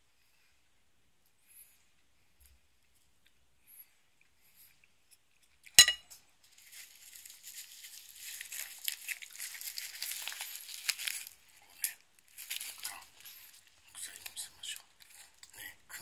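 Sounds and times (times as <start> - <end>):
dry seaweed crackling: 6.4 - 15.4.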